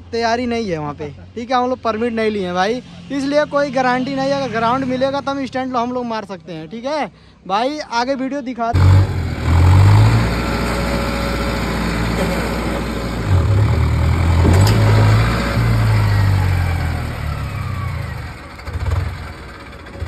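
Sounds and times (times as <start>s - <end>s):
tractor diesel engine rumbling: 8.7s - 20.0s.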